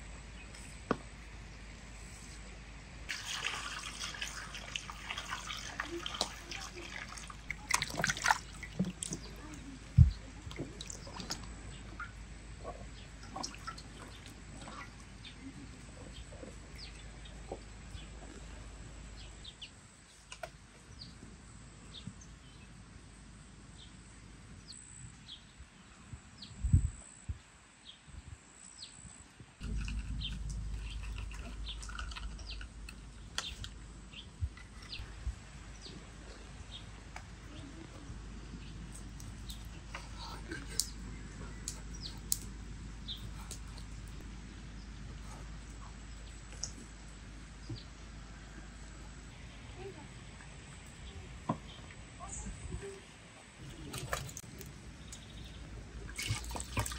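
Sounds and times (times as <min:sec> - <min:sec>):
water splashing in metal basin: 0:03.1 - 0:09.6, 0:10.4 - 0:12.1, 0:13.2 - 0:14.9, 0:53.8 - 0:54.7, 0:56.1 - 0:56.9
birds chirping: 0:04.0 - 0:21.2, 0:29.6 - 0:53.0, 0:53.6 - 0:56.9.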